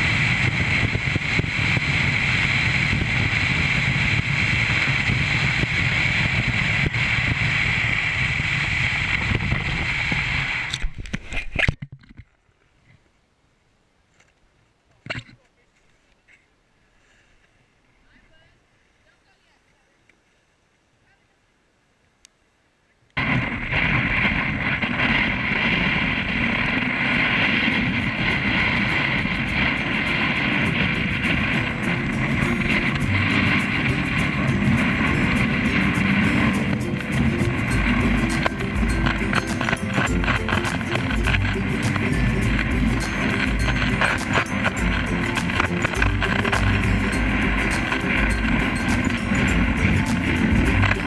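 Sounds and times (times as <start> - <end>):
sled scraping over snow: 0.0 - 11.8, 23.2 - 51.0
wind on microphone: 0.0 - 11.8, 23.2 - 51.0.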